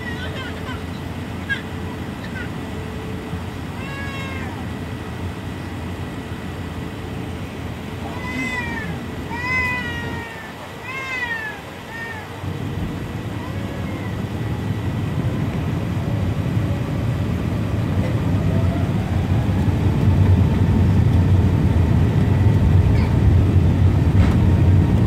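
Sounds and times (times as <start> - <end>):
airplane cabin rumble: 0.0 - 25.0
meow-like wailing cries: 3.8 - 4.6, 8.0 - 12.4, 13.3 - 14.3.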